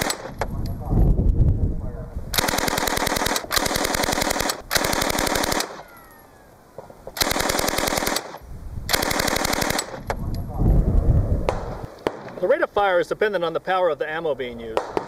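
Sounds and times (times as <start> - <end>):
submachine gun bursts: 0.0 - 0.4, 2.4 - 6.1, 7.2 - 10.1.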